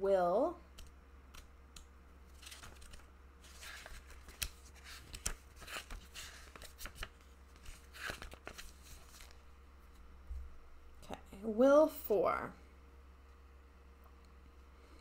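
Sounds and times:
steady low hum: 0.0 - 15.0
book pages being flipped: 2.3 - 9.4.

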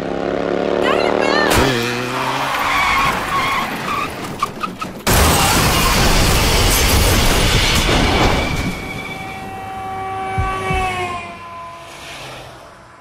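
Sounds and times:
car crash: 1.5 - 9.7
car tyres skidding: 1.6 - 12.7
glass shattering: 4.7 - 9.2.

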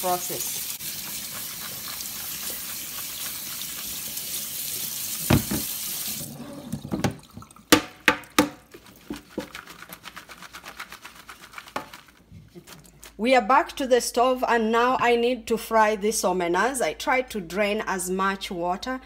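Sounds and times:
water running from tap: 0.0 - 9.5
colander knocking and rattling: 5.3 - 5.7, 7.8 - 9.6.

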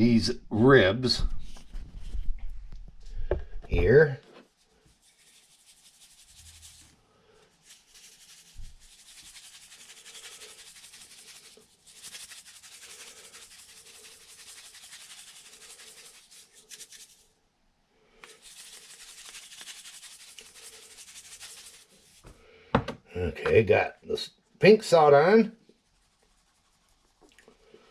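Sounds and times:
salt grinder grinding: 7.6 - 17.2, 18.2 - 22.2.

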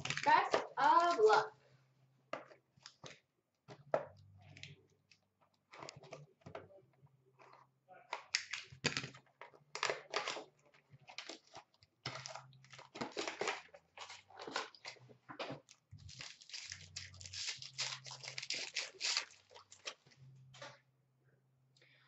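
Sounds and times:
foil wrappers tearing and crinkling: 12.1 - 14.9, 16.0 - 20.0.

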